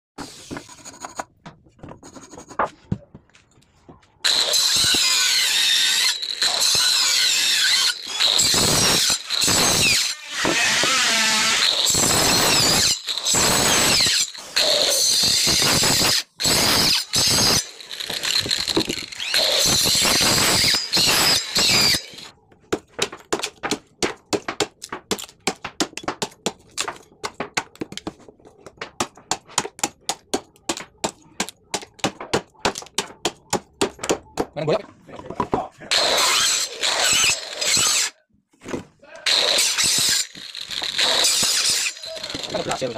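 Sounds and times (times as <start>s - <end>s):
power saw cutting wood: 4.3s - 22.3s, 35.9s - 38.2s, 39.2s - 42.9s.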